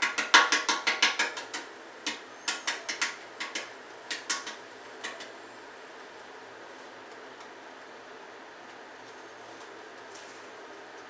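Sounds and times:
egg cracking against metal sink: 0.0 - 5.3.

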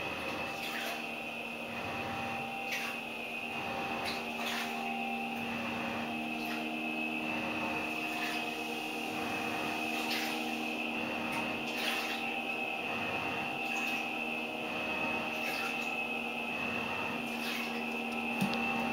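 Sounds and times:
washing machine motor hum: 0.0 - 18.9
washing machine swishes: 3.6 - 14.2.

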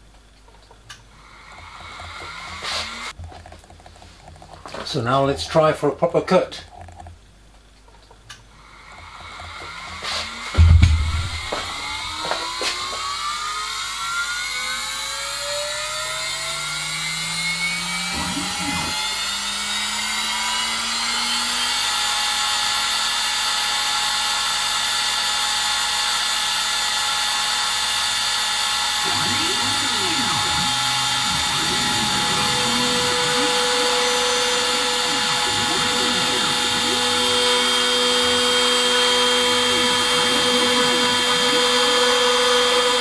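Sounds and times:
spindle motor whine: 8.5 - 43.0
stepper motors warbling: 14.6 - 20.8, 28.8 - 43.0.

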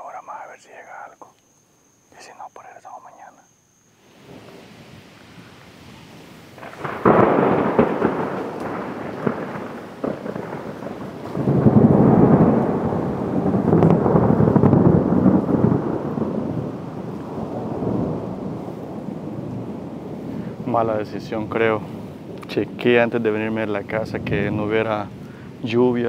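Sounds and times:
thunder clap and rumbling: 6.6 - 26.0.

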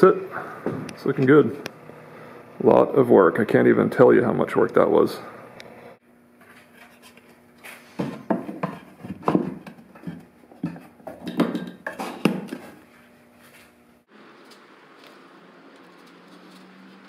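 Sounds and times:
faint steady hum: 0.0 - 8.8
wood-on-wood knocks and clatters: 8.0 - 12.7.

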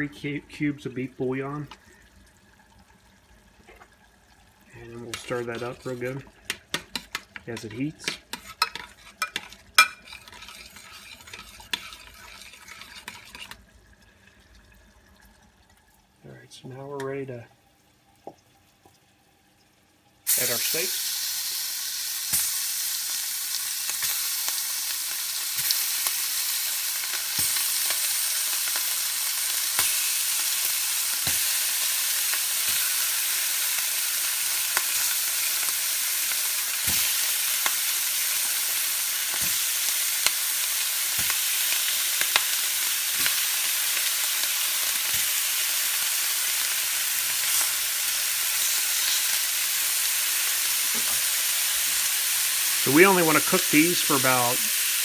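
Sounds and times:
steaks knocking into pan: 5.0 - 12.2, 22.3 - 23.2, 23.9 - 54.9
steaks sizzling in a skillet: 5.2 - 13.6, 20.3 - 55.0.

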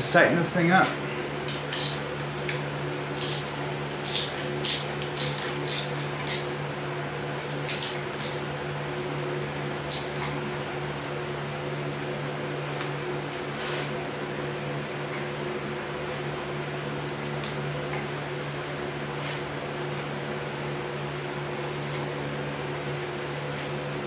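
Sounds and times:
steady low hum: 0.0 - 24.0
ratchet clicking: 1.7 - 2.0, 3.2 - 6.5, 7.7 - 8.4.

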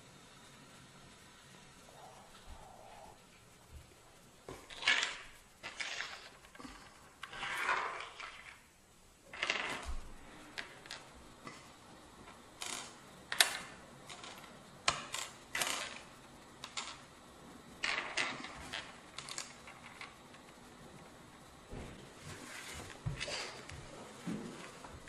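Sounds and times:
beads clicking on a wooden table: 12.6 - 17.0.

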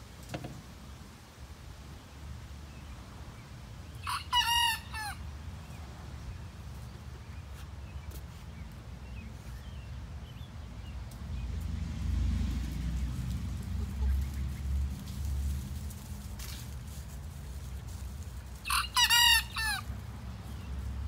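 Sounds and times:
young rooster crowing: 4.0 - 5.2, 18.6 - 19.9.

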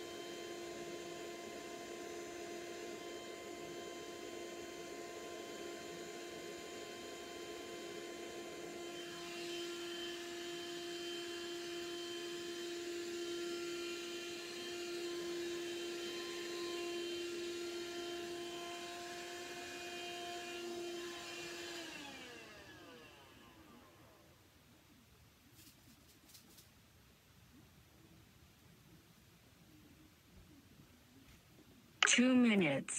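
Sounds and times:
vacuum cleaner whining: 0.0 - 24.3.

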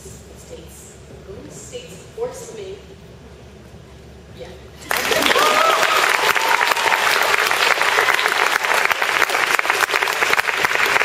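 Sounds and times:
audience clapping: 4.8 - 11.0.

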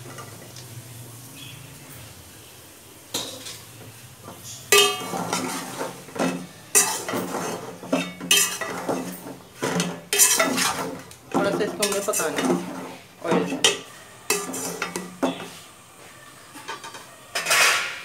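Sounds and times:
steel ladle stirring in a pot: 3.1 - 15.7
sharp metal-on-metal clanks: 4.7 - 5.4.

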